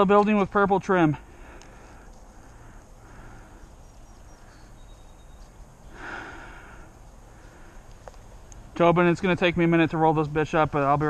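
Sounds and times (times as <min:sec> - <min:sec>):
person breathing: 0:01.2 - 0:03.8, 0:05.9 - 0:07.9.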